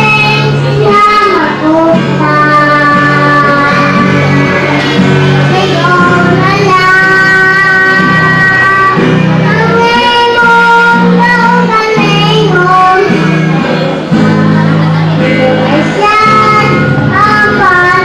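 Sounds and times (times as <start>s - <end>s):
girl singing into microphone: 0.0s - 18.0s
low instrumental accompaniment: 0.0s - 18.0s.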